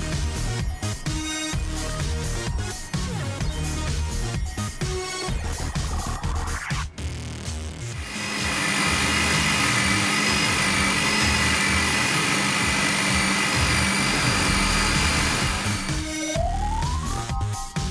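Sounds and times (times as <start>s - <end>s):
blender motor whining: 8.0s - 17.1s.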